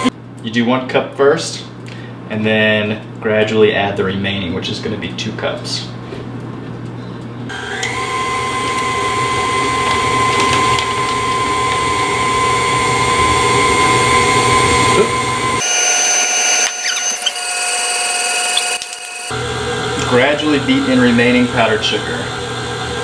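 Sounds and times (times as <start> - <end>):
stand mixer motor whine: 7.5 - 23.0.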